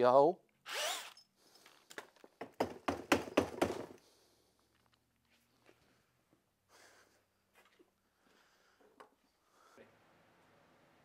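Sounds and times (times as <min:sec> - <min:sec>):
quick knocks and thumps: 0:02.4 - 0:04.0.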